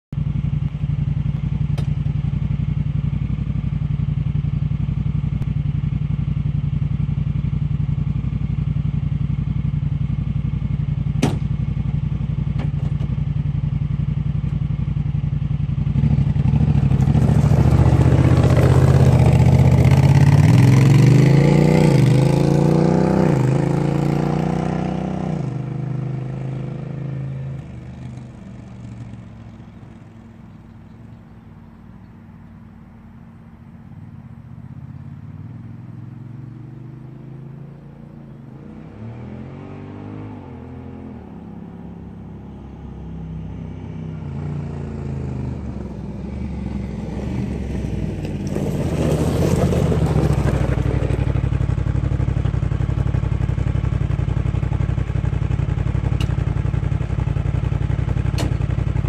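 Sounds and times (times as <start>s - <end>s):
engine idling and revving: 0.1s - 59.0s.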